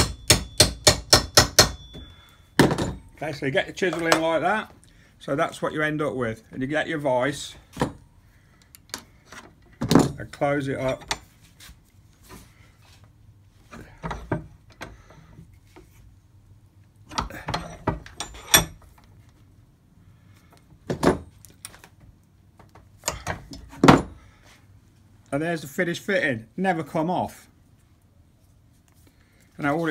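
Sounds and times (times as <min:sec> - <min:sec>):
metallic clanks from vise: 0:17.2 - 0:18.9.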